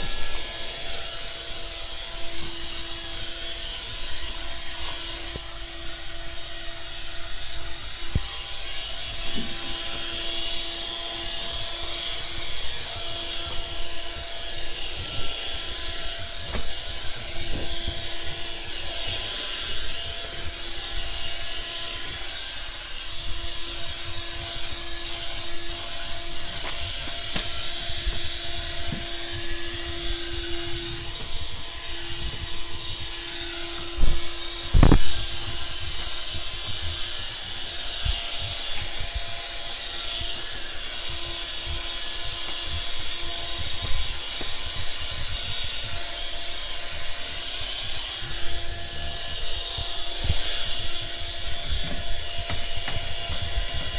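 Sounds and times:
vacuum cleaner motor humming: 0:00.0 - 0:53.9
vacuum head rubbing on matting: 0:00.0 - 0:53.9.

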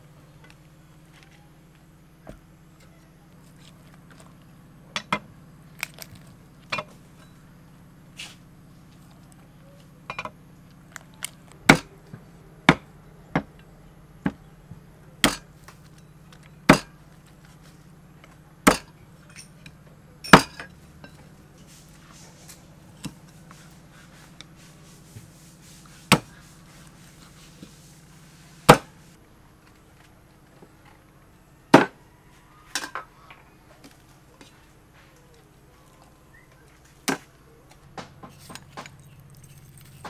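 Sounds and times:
cleaver chopping on wooden board: 0:11.7 - 0:11.9, 0:15.2 - 0:15.4, 0:16.7 - 0:16.9, 0:18.7 - 0:18.9, 0:26.1 - 0:26.4, 0:28.7 - 0:28.9, 0:31.8 - 0:32.0.

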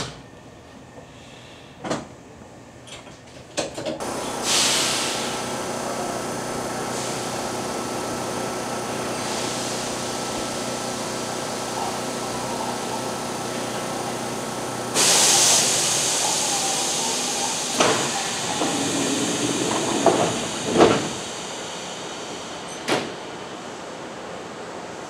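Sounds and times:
compressed air hiss: 0:04.0 - 0:06.1, 0:09.0 - 0:10.6, 0:14.9 - 0:22.0
electric train humming: 0:04.0 - 0:25.0.

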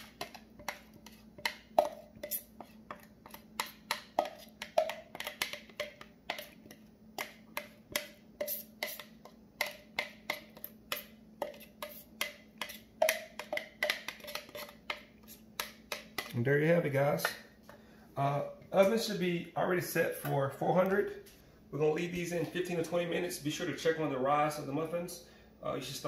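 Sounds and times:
knife tapping and scraping plastic: 0:00.0 - 0:16.4.

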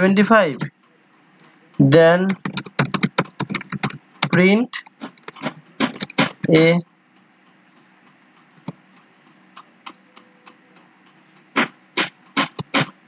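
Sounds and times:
keyboard keys clicking: 0:02.0 - 0:06.6.

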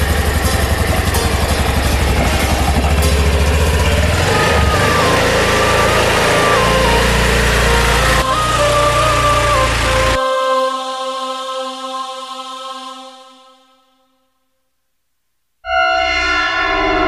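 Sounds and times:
scooter engine idling and pulling away: 0:00.0 - 0:10.2
background music: 0:00.0 - 0:13.8.

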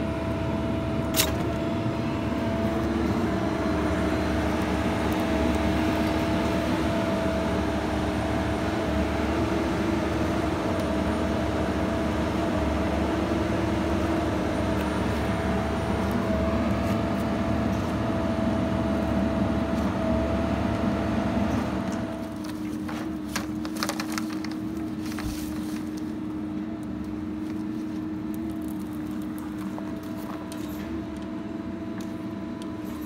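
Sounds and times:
hydraulic power unit droning: 0:00.0 - 0:33.0.

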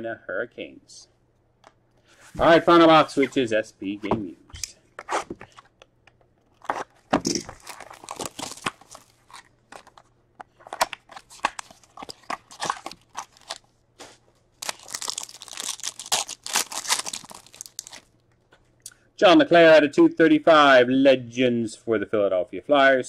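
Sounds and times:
foil pack crinkling: 0:06.6 - 0:10.1, 0:10.7 - 0:13.7, 0:14.6 - 0:18.2
plastic shrink-wrap crackling: 0:07.6 - 0:10.0, 0:14.6 - 0:18.1.

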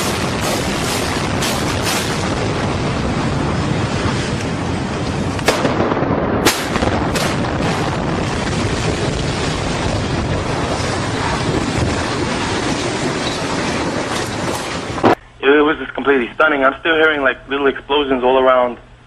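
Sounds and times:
demolition charges banging: 0:00.0 - 0:15.2
heavy rumble of collapsing masonry: 0:00.0 - 0:15.2.

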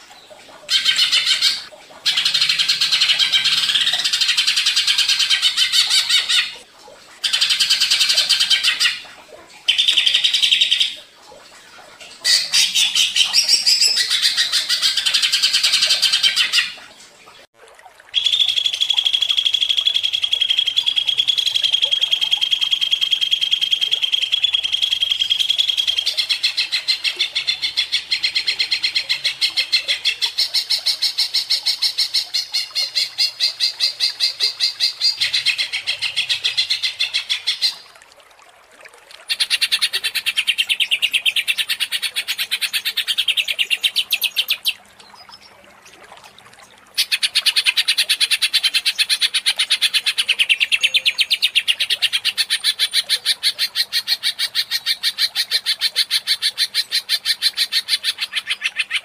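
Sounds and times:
bird chattering song and trill: 0:12.3 - 0:16.7, 0:39.3 - 0:45.5, 0:47.0 - 0:55.2.

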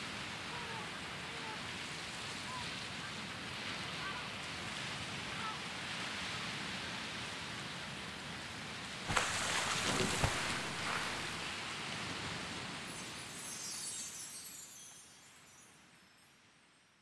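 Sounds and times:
sea waves washing: 0:08.7 - 0:13.2
high glittering shimmer: 0:12.8 - 0:16.9.

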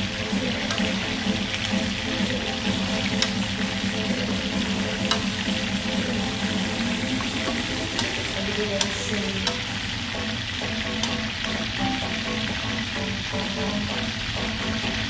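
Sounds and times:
metal tongs turning food: 0:00.0 - 0:11.6
chicken sizzling in oil: 0:00.0 - 0:15.0.

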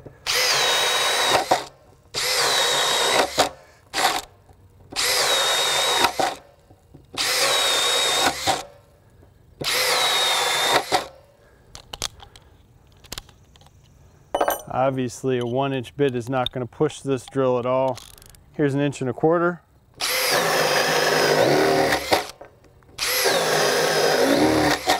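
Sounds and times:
drill boring into wood: 0:00.2 - 0:04.3, 0:04.9 - 0:06.4, 0:07.2 - 0:08.7, 0:09.6 - 0:11.1, 0:20.0 - 0:22.4, 0:23.0 - 0:24.9.

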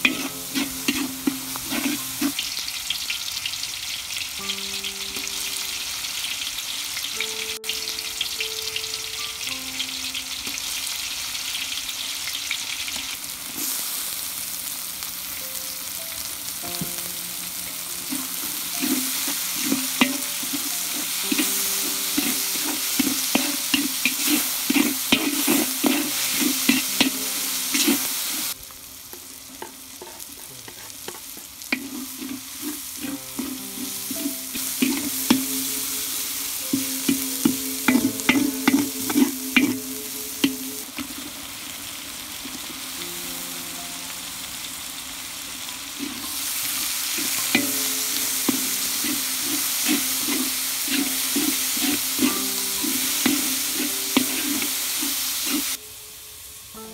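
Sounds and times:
spoon stirring and scraping: 0:00.0 - 0:02.4, 0:18.0 - 0:28.6, 0:29.6 - 0:41.4, 0:46.0 - 0:55.8
food sizzling in a pot: 0:00.0 - 0:56.9.

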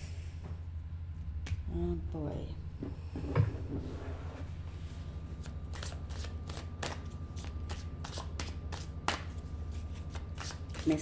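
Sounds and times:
cards being shuffled: 0:05.4 - 0:11.0.

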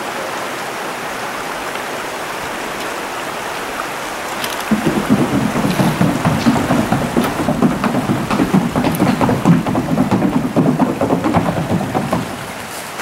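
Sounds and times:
river water rushing: 0:00.0 - 0:13.0
horse hoofbeats on wooden bridge: 0:04.1 - 0:13.0.

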